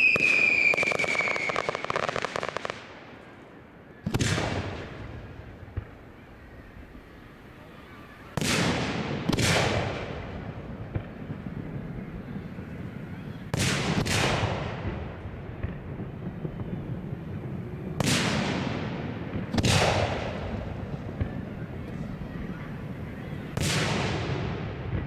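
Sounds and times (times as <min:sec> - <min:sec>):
firework shells booming: 0:13.4 - 0:21.9.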